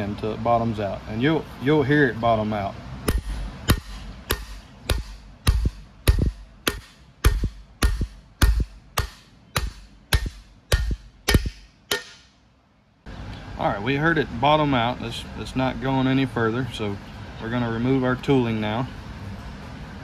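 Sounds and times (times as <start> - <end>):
hammer striking metal bar: 3.1 - 12.4.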